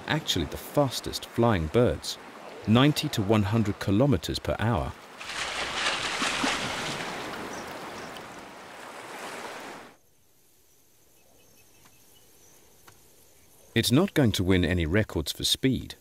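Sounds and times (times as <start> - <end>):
rushing water: 0.0 - 10.0
wind: 0.0 - 16.0.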